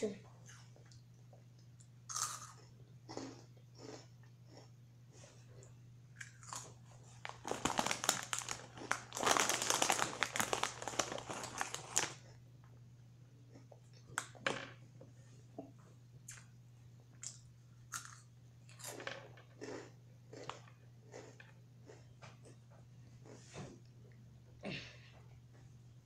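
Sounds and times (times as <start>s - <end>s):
steady low hum: 0.0s - 26.0s
crunchy snack chewing: 2.1s - 4.7s, 6.2s - 12.3s, 17.2s - 22.6s.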